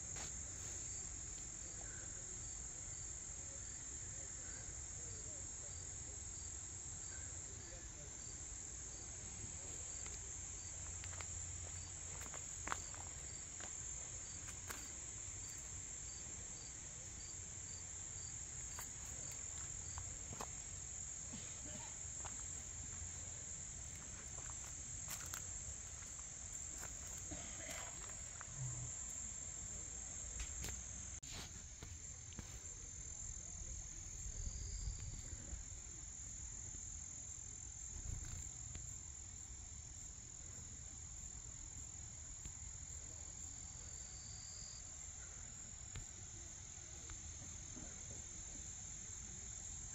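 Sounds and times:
insects trilling: 0.0s - 49.9s.

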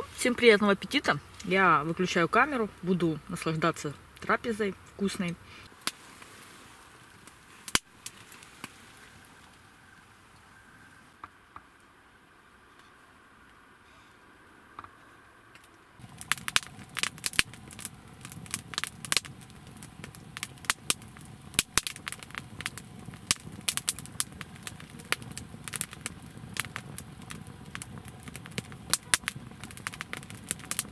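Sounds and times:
wood fire crackling: 0.0s - 9.6s, 15.5s - 30.9s
sharp pops: 16.0s - 30.9s.

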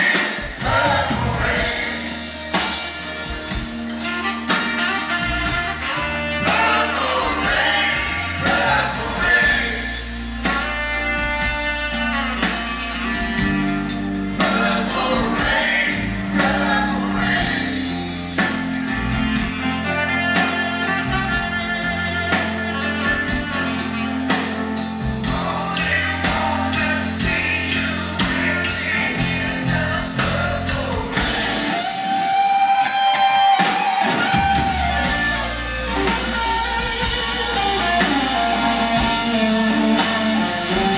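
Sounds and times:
live rock band playing: 0.0s - 40.9s
person singing: 25.2s - 32.4s.

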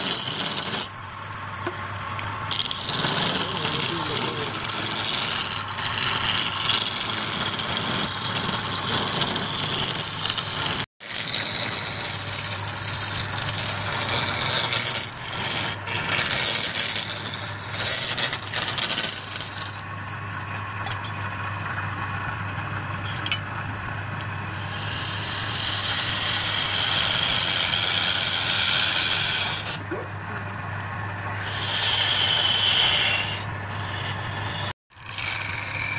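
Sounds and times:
chisel scraping wood on lathe: 0.0s - 0.9s, 2.5s - 19.9s, 24.5s - 29.8s, 31.4s - 35.9s
lathe motor hum: 0.0s - 35.9s.

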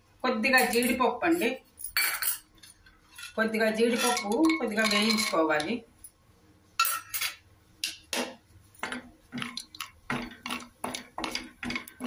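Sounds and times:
spatula scraping a pan: 3.1s - 5.4s
nuts frying in oil: 8.8s - 12.0s.

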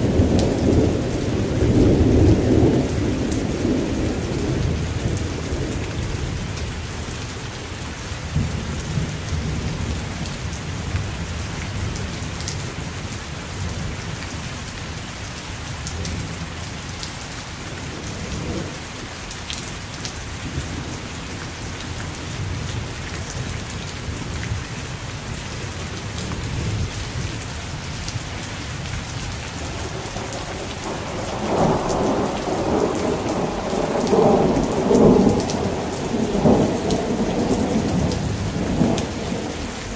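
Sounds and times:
steady rain: 0.0s - 39.9s
thunder rumbling: 29.6s - 39.9s.

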